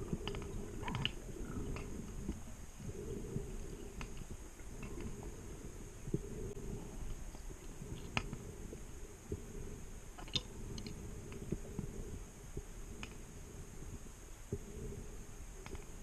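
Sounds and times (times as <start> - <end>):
underwater low rumble: 0.0 - 16.0.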